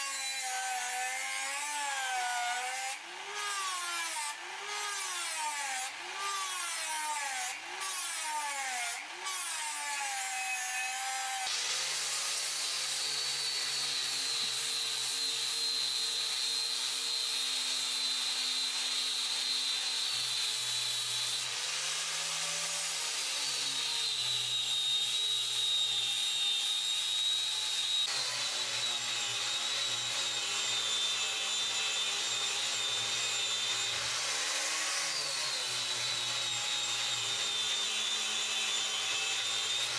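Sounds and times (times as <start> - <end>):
angle grinder sanding steel: 0.0 - 39.9
rotary tool grinding steel: 0.0 - 39.9.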